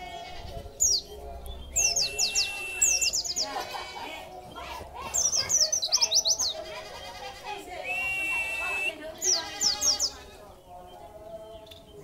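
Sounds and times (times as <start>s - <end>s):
bird singing high falling chirps: 0.8s - 3.4s
bird whistle: 1.7s - 3.2s, 7.8s - 9.0s.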